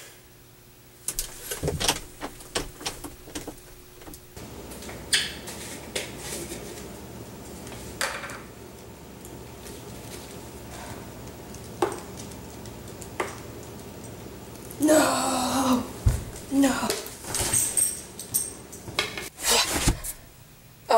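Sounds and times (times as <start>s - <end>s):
room hum: 0.0s - 20.9s
door knob rattling and clicking: 1.1s - 4.4s.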